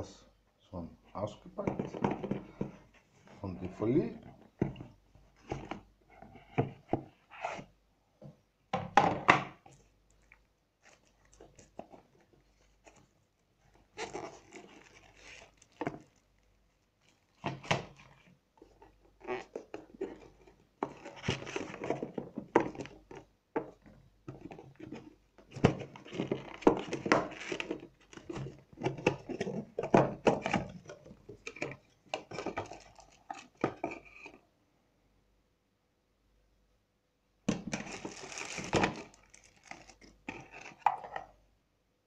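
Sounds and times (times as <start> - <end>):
plastic wrap rustling and crinkling: 9.6 - 23.3, 24.4 - 34.3, 37.5 - 40.9.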